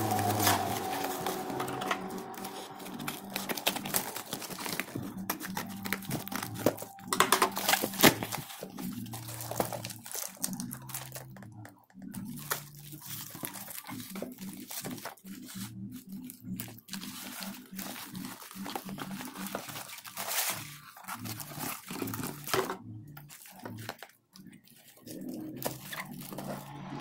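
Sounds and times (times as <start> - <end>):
boxes pulled from cardboard parcel: 0.0 - 11.3, 16.6 - 22.7, 24.8 - 27.0
plastic wrap crinkling: 0.0 - 27.0.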